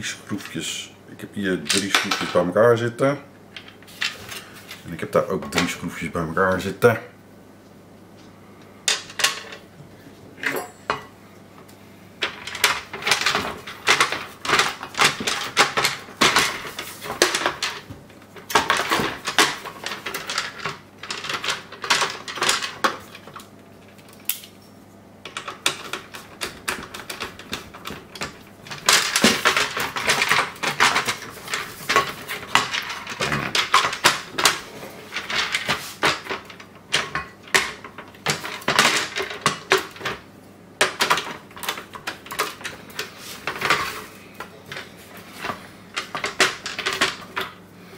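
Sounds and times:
plastic rattling: 25.3 - 40.2.

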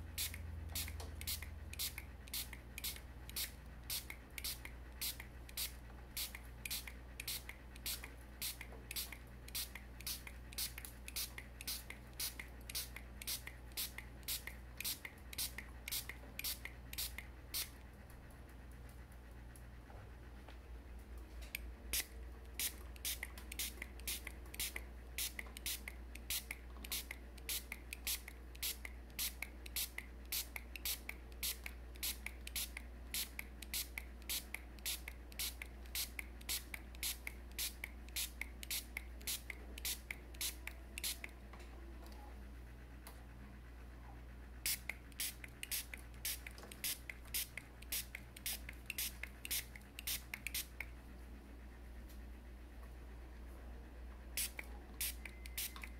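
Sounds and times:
spray bottle squirting water: 0.2 - 17.8, 21.9 - 41.2, 44.7 - 50.8, 54.4 - 55.9.

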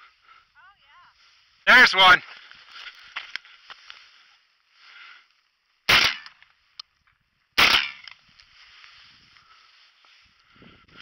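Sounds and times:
shotgun shots with echo: 5.9 - 6.3, 7.6 - 8.0.

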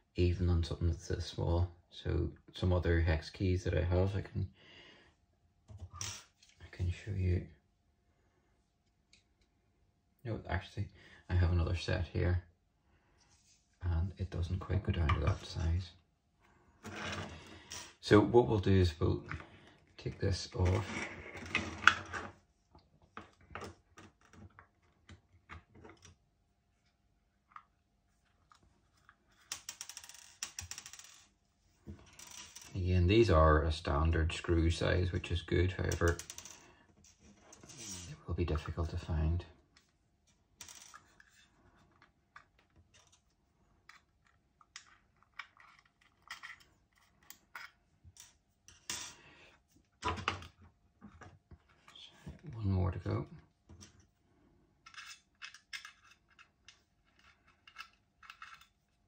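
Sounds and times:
small screws clicking on a table: 29.4 - 31.3, 43.9 - 49.2, 54.8 - 58.8.

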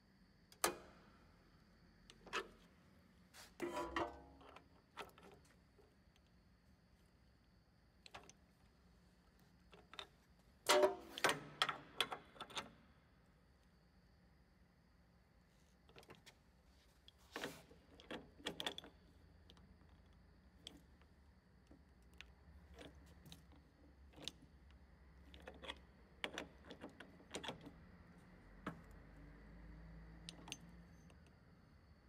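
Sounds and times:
faint clicks and metal taps: 0.5 - 1.0, 3.6 - 6.4, 8.0 - 12.8, 15.8 - 29.3, 30.0 - 31.4.

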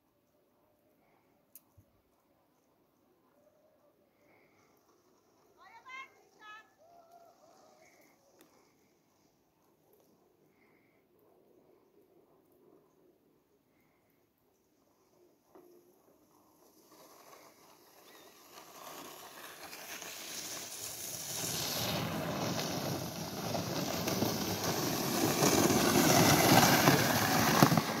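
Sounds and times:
sled runners hissing on snow: 16.0 - 28.0.

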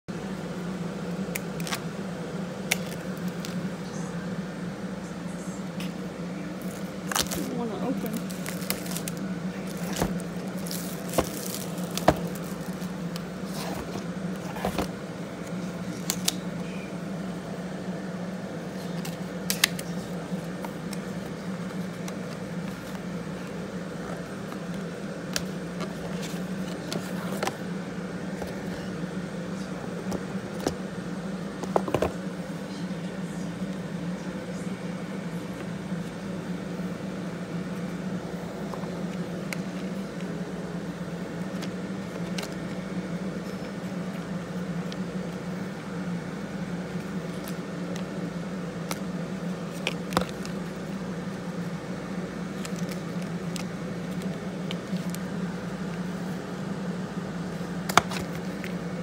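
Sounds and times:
steady low hum: 0.0 - 59.0
plastic wrap crinkling: 6.6 - 13.0.

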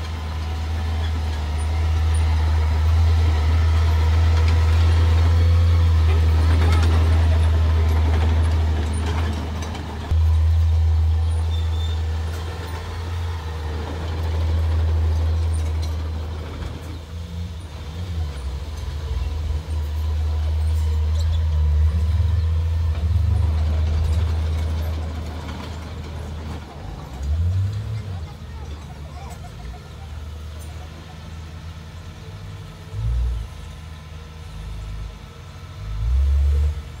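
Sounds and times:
bulldozer diesel engine drone: 0.0 - 37.0.

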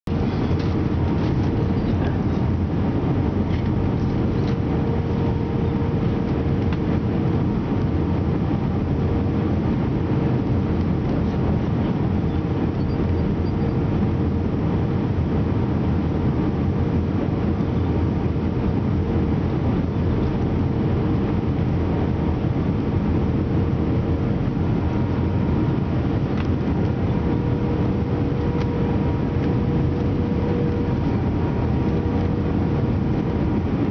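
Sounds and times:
engine and airflow rush: 0.0 - 33.9
steady cabin hum: 0.0 - 33.9.

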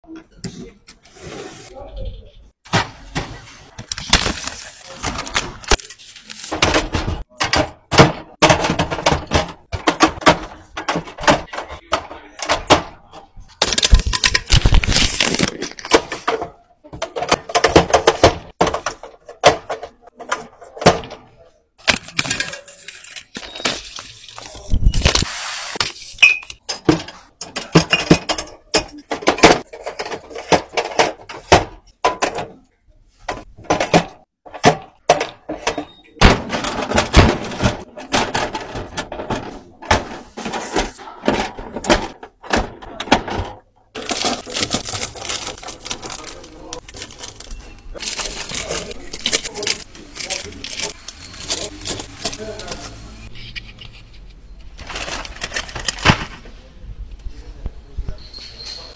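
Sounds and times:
plastic shrink-wrap crinkling: 13.6 - 15.9, 44.0 - 53.2.

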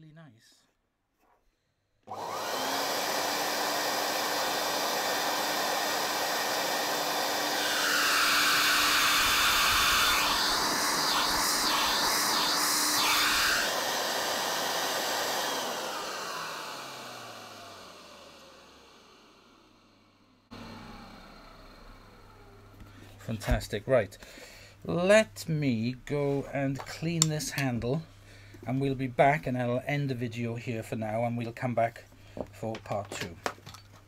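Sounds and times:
vacuum motor whine: 2.1 - 23.2.

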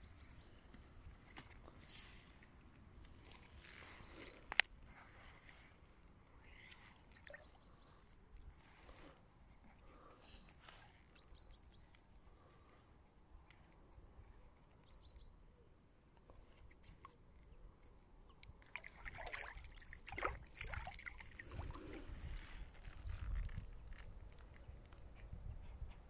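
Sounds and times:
water sloshing and splashing: 18.3 - 24.6.

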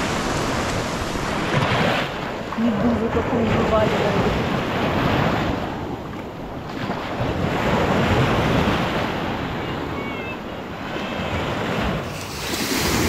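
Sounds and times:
sea surf washing onto beach: 0.0 - 13.0
wind buffeting microphone: 0.0 - 13.0.

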